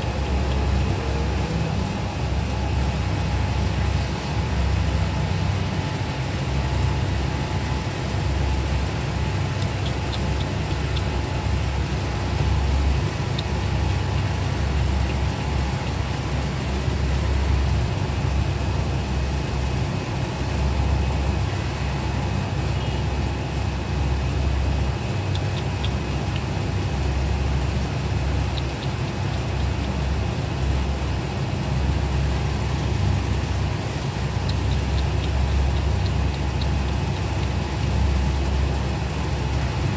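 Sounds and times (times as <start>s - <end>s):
faint steady hum: 0.0s - 39.9s
low background rumble: 0.0s - 39.9s
faint ticks: 9.5s - 16.2s, 25.0s - 26.8s, 28.0s - 30.3s, 34.0s - 38.6s.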